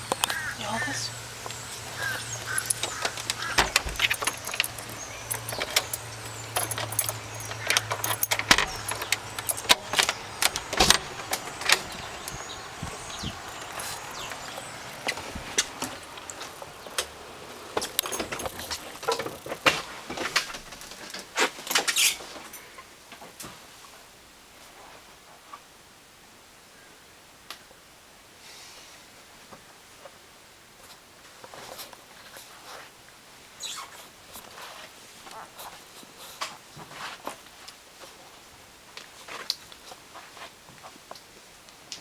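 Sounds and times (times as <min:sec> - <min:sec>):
door latch clicking: 0:02.5 - 0:12.1
keys jangling: 0:02.5 - 0:14.6.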